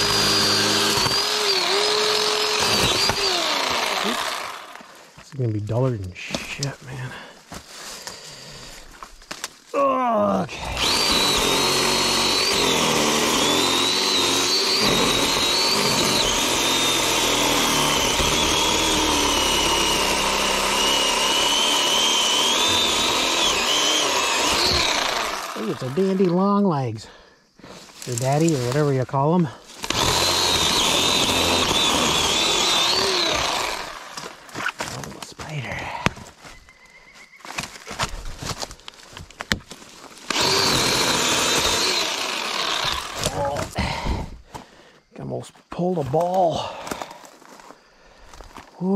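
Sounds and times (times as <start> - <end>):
power tool motor whining: 0.0 - 4.9, 10.5 - 26.6, 29.8 - 34.8, 40.2 - 44.0
brush snapping and knocking: 0.4 - 4.9, 8.9 - 9.7, 27.7 - 28.9, 37.5 - 41.8.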